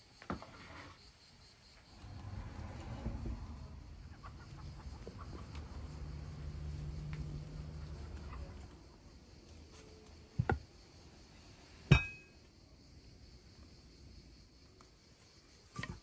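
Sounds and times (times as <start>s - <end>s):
low steady hum: 1.9s - 8.8s, 11.9s - 12.4s
heavy pan knocking on table: 11.9s - 12.2s
metallic clink with ring: 11.9s - 12.3s.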